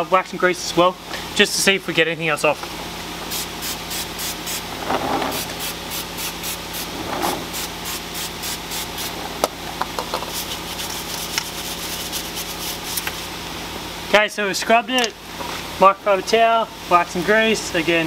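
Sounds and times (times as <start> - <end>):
brush scrubbing metal: 3.3 - 9.3, 10.2 - 13.3.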